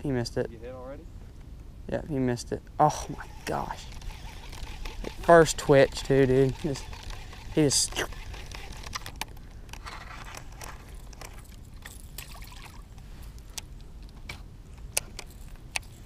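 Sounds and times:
short clicks and scrapes: 0:03.2 - 0:11.5
water splashing and trickling: 0:11.7 - 0:13.0.

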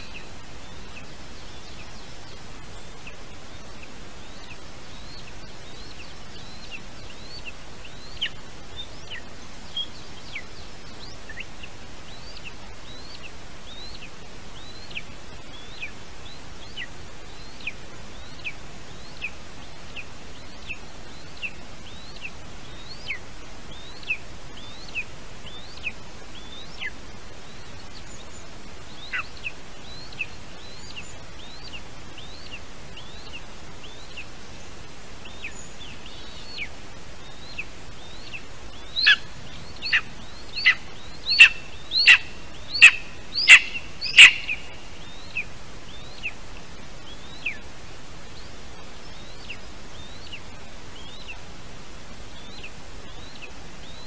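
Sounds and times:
steady background hiss: 0:00.0 - 0:54.0
bird chick chirping: 0:29.0 - 0:30.3, 0:37.5 - 0:46.4.

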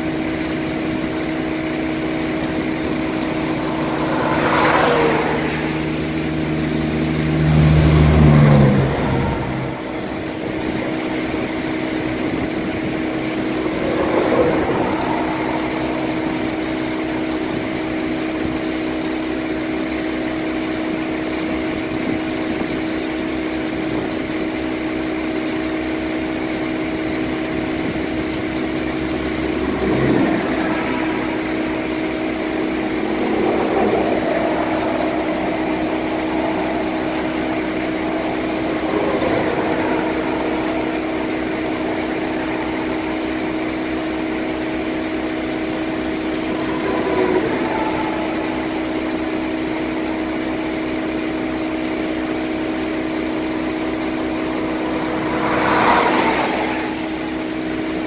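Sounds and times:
street sweeper engine humming: 0:00.0 - 0:58.0.

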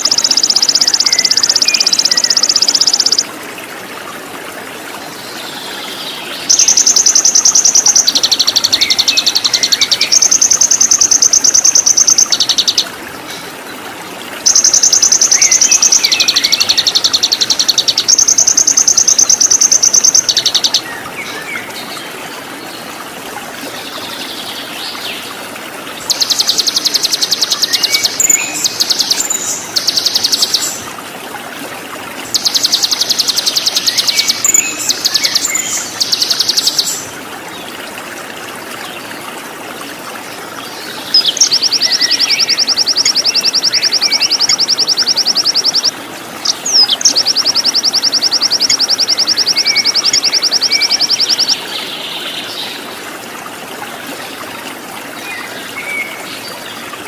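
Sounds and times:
soft bird chirps: 0:00.0 - 0:03.2
running water: 0:00.0 - 0:57.0.

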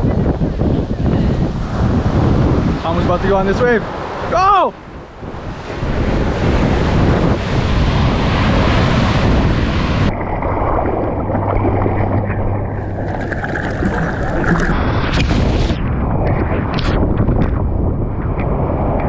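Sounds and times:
wind buffeting microphone: 0:00.0 - 0:19.0
ocean surf breaking: 0:01.5 - 0:15.7
muffled underwater rush: 0:08.0 - 0:17.3.

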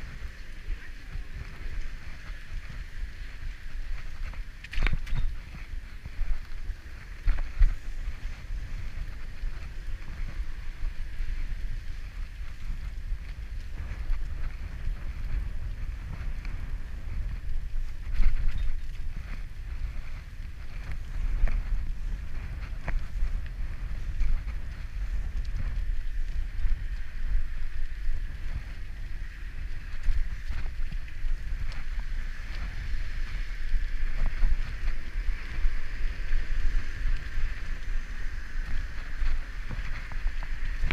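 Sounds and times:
bicycle tyres rolling: 0:00.0 - 0:40.9
wind buffeting microphone: 0:00.0 - 0:40.9
bicycle knocks and rattles: 0:01.4 - 0:10.3.

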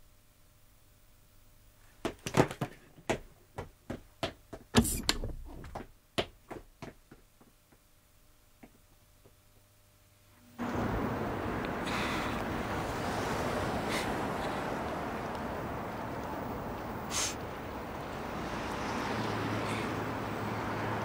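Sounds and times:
sharp knocks and thuds: 0:02.1 - 0:07.0.

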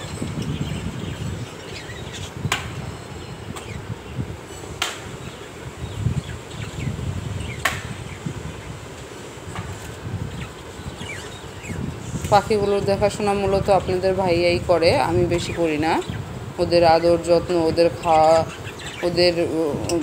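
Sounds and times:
budgerigars chirping: 0:10.3 - 0:11.9, 0:17.4 - 0:20.0.

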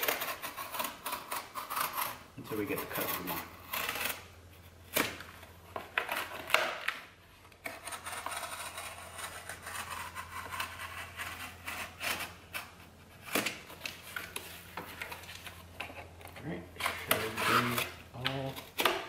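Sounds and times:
blade scraping through cardboard: 0:00.0 - 0:04.3, 0:07.6 - 0:15.5, 0:16.8 - 0:18.0.

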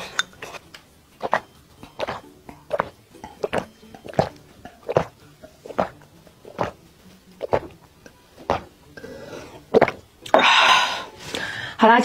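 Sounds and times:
person gulping a drink: 0:01.2 - 0:06.8, 0:07.4 - 0:10.5.

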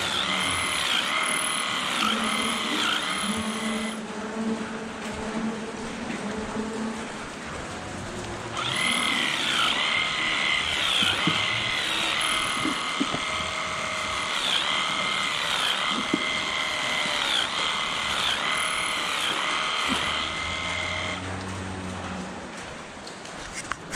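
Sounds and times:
electric clippers whining: 0:00.0 - 0:04.0, 0:08.5 - 0:21.4.

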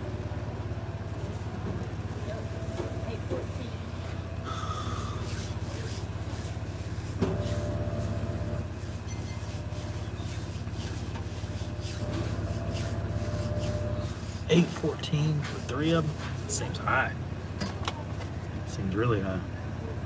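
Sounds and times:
car engine idling: 0:00.0 - 0:07.2.

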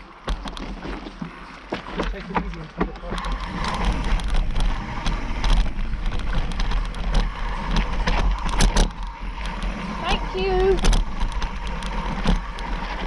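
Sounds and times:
bike rattling over bumps: 0:00.0 - 0:13.0
bike tyres on dirt and stones: 0:00.0 - 0:13.0
wind rumble on microphone: 0:03.2 - 0:13.0.

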